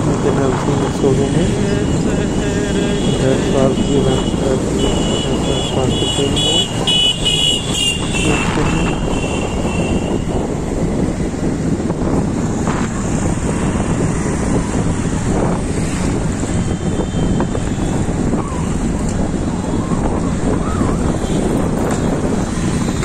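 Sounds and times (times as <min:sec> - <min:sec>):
traffic engines and tyres rumble: 0:00.0 - 0:23.0
wind on microphone: 0:00.0 - 0:23.0
vehicle horn: 0:02.2 - 0:10.4.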